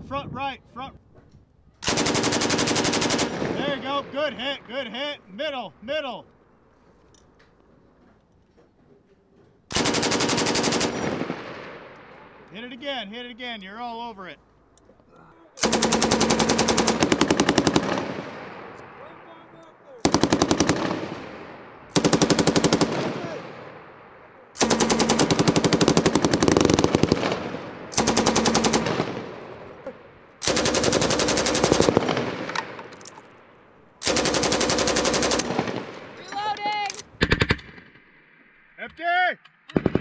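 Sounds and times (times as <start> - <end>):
machine gun firing bursts: 1.8 - 3.8, 9.7 - 11.7, 15.6 - 18.4, 20.0 - 21.3, 21.9 - 23.5, 24.6 - 29.4, 30.4 - 32.8, 34.0 - 36.2, 39.7 - 40.0.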